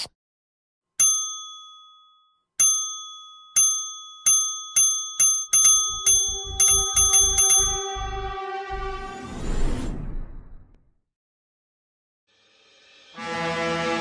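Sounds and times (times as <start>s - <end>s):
bright bell-like ding: 1.0s - 8.2s
background music with pulsing bass: 6.2s - 9.1s.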